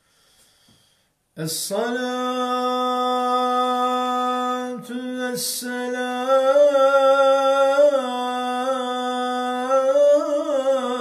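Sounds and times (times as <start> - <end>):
quick breath: 0.0 - 1.2
man chanting a prayer: 1.4 - 11.0.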